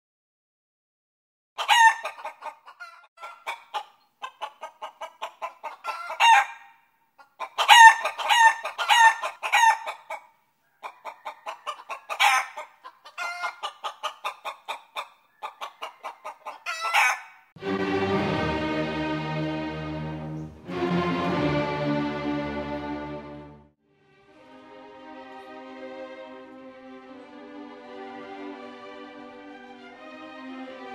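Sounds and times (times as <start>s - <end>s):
chicken clucking: 1.6s - 17.4s
chicken squawking: 1.6s - 17.5s
orchestral music: 17.6s - 30.9s.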